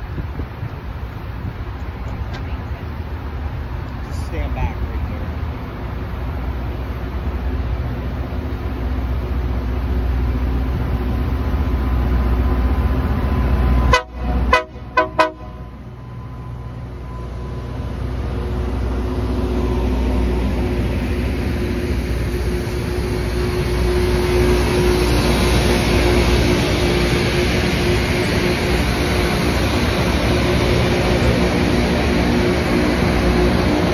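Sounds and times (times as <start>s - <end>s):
rail grinding hiss and whine: 0.0s - 33.9s
train engines droning: 0.0s - 33.9s
train horn toots: 13.8s - 15.8s.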